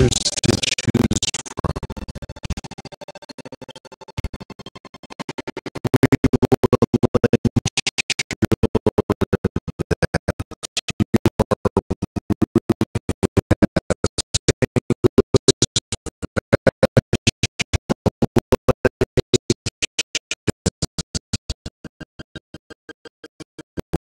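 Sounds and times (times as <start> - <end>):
fast electronic music: 0.0 - 2.6, 5.8 - 9.3, 12.9 - 24.0.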